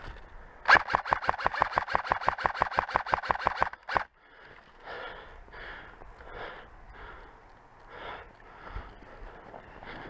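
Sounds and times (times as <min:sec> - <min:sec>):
airsoft rifle firing: 0:00.7 - 0:04.1.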